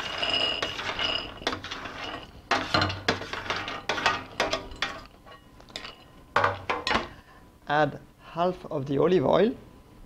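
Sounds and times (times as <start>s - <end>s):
spatula scraping a metal sheet: 0.0s - 5.1s.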